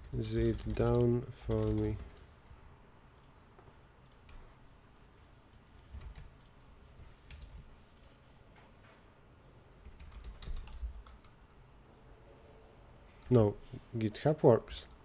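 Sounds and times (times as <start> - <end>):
computer mouse clicks: 3.1 - 3.4, 4.0 - 4.5, 5.5 - 6.6
keyboard keys tapping: 9.9 - 11.4.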